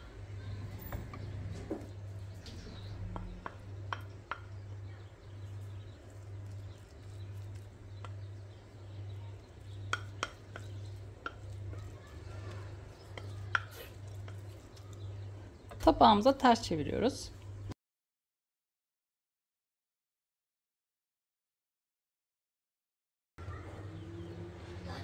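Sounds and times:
spoon tapping bowl and pot: 3.1s - 4.6s, 9.6s - 11.6s
spoon scooping rice: 5.3s - 15.4s.

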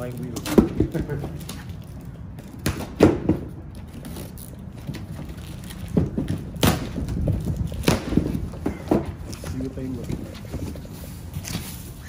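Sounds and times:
cardboard flaps scraping and crackling: 0.0s - 12.0s.

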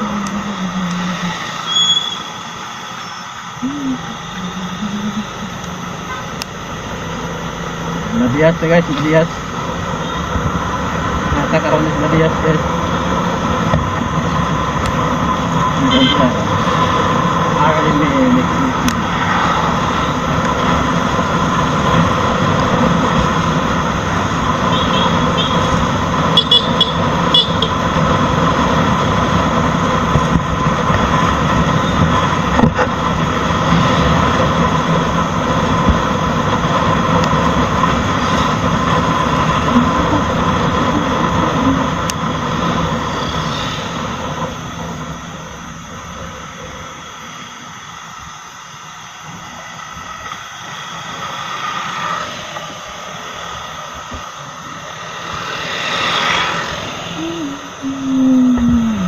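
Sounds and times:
road noise: 0.0s - 59.0s
motorcycle engine running: 3.6s - 47.0s.

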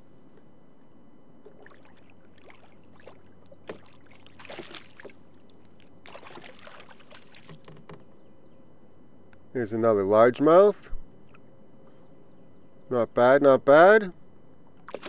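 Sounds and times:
fish splashing at water surface: 1.5s - 7.7s.

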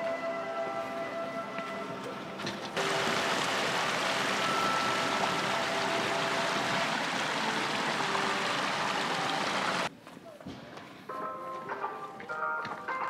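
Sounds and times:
faint music: 0.0s - 13.0s
steady rushing noise: 2.8s - 9.9s.

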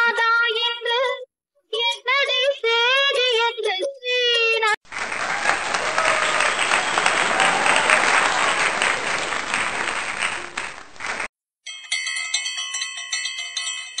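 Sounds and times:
crowd applause: 4.9s - 11.3s
bell-like chiming jingle: 11.7s - 14.0s.

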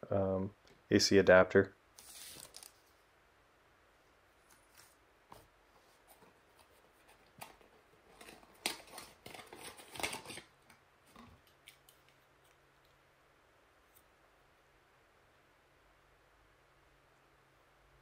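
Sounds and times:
plastic bag crinkling: 2.0s - 2.9s.

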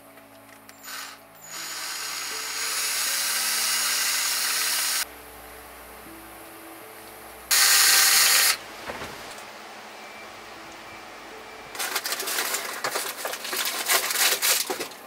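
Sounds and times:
cordless drill drilling: 0.8s - 5.0s, 7.5s - 8.6s.

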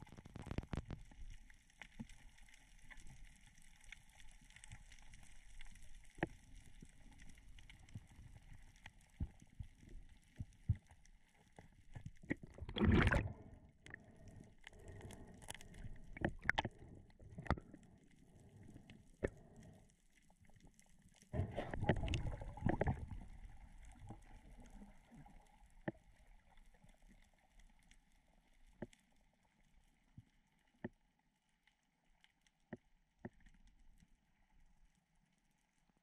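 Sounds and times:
water sloshing and gurgling: 0.0s - 31.0s
rush of water: 12.3s - 13.5s.

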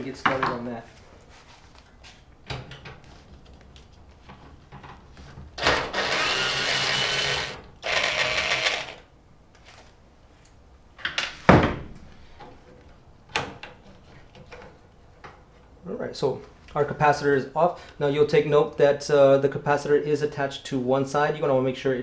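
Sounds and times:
cordless drill running: 5.6s - 9.1s.

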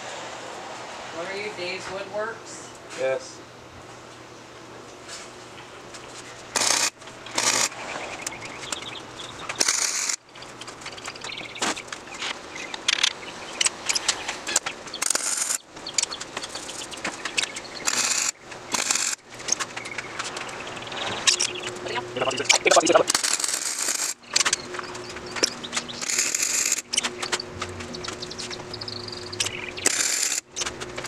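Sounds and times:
low steady hum: 0.0s - 31.0s
welding arc crackling: 6.5s - 31.0s.

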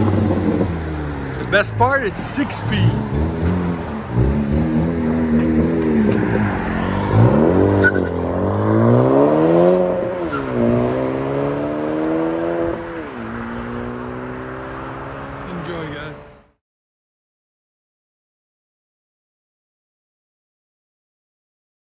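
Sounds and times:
car exhaust accelerating through gears: 0.0s - 15.5s.

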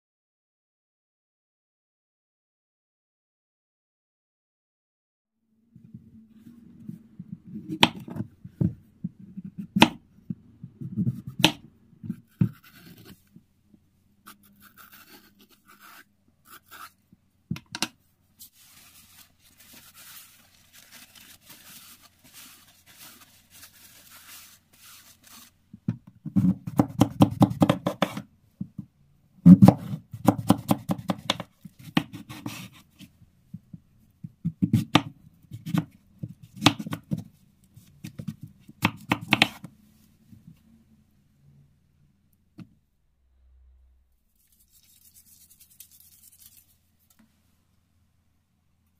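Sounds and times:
knife chopping on wooden board: 26.3s - 28.2s, 29.5s - 32.7s, 36.6s - 37.2s, 38.2s - 39.7s.

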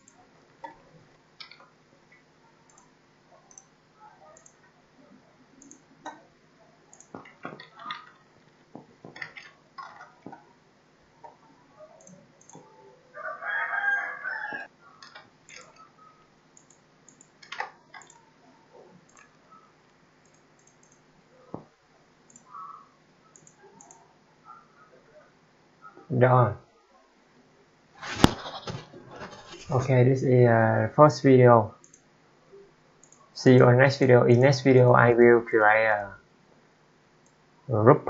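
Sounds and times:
keyboard typing: 0.0s - 0.8s, 2.7s - 2.9s, 3.5s - 4.7s, 5.6s - 6.2s, 6.9s - 10.4s, 11.8s - 12.7s, 15.0s - 18.3s, 19.0s - 21.0s, 22.3s - 22.6s, 23.3s - 24.0s, 31.8s - 32.0s, 33.0s - 33.3s
mouse clicks: 0.0s - 0.8s, 2.7s - 2.9s, 3.5s - 3.7s, 4.3s - 4.6s, 5.6s - 6.2s, 6.9s - 8.0s, 12.0s - 12.7s, 15.0s - 15.9s, 16.6s - 18.3s, 19.1s - 19.6s, 20.2s - 21.0s, 22.3s - 22.7s, 23.3s - 24.0s, 31.8s - 32.0s, 33.0s - 33.3s.

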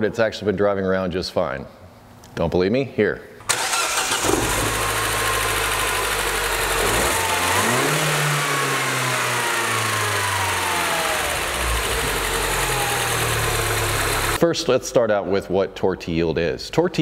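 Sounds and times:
car engine idling: 3.5s - 14.4s
engine revving: 3.5s - 14.4s.

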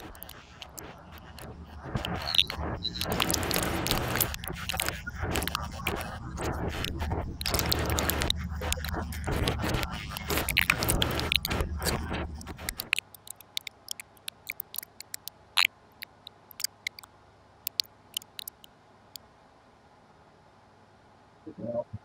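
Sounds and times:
sharp mouth clicks: 0.0s - 18.7s
fan and air conditioner hum: 17.1s - 22.0s.

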